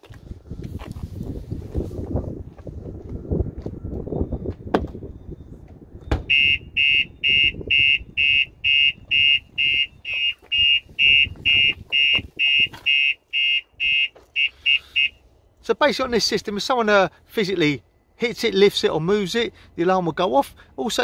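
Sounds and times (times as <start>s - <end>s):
sharp thump on van body: 4.7s - 5.0s, 6.1s - 6.3s
alarm siren fast beeps: 6.2s - 15.2s.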